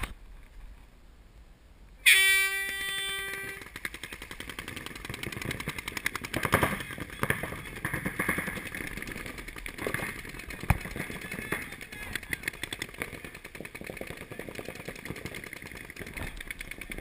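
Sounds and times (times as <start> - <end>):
horn tone: 2.0 - 3.6
paintball markers popping: 3.3 - 17.0.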